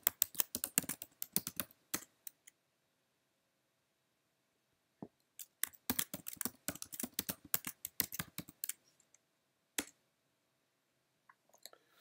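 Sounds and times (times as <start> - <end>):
typing on computer keyboard: 0.0 - 2.4, 5.4 - 8.8.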